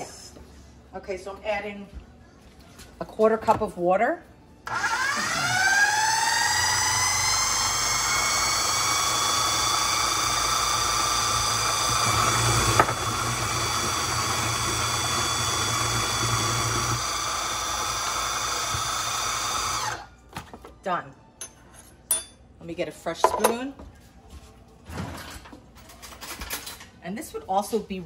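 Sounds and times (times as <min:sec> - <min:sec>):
blender motor whining: 0:04.7 - 0:20.1.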